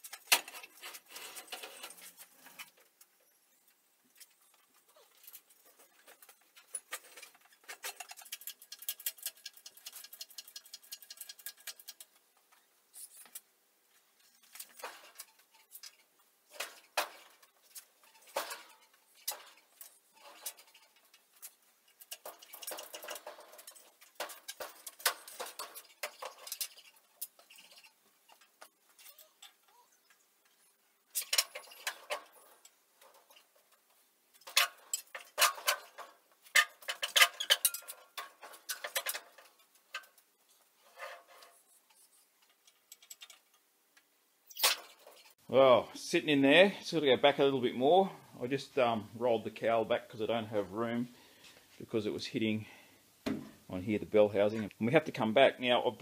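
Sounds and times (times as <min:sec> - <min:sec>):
metal clanks: 0:04.2 - 0:13.5, 0:14.2 - 0:43.7.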